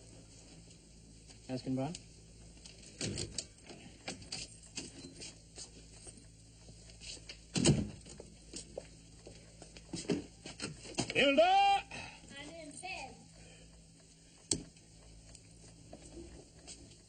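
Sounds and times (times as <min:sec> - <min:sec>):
small clicks and knocks: 0:14.4 - 0:17.0.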